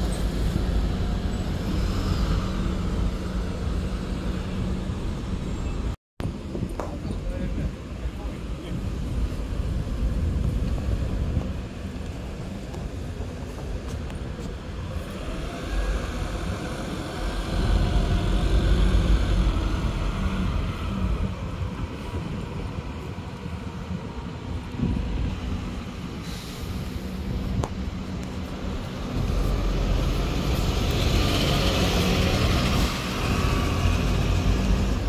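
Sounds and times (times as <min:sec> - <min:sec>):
diesel bus driving past: 0:00.0 - 0:06.0, 0:08.5 - 0:35.0
engine whine: 0:09.0 - 0:35.0.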